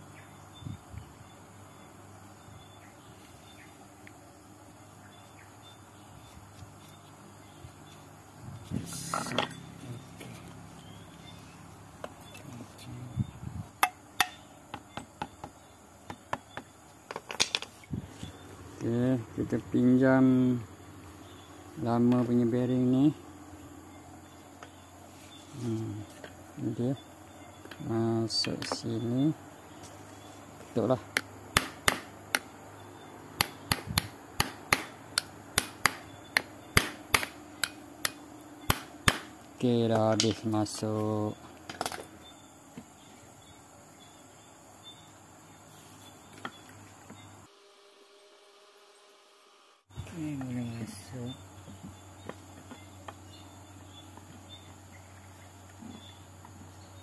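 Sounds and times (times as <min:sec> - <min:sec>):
hammer striking bearing: 0:13.8 - 0:16.7, 0:31.2 - 0:32.5, 0:33.4 - 0:39.3.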